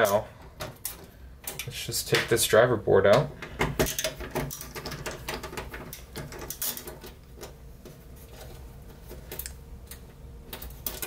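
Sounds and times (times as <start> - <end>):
screws clicking and rattling: 3.7 - 7.3.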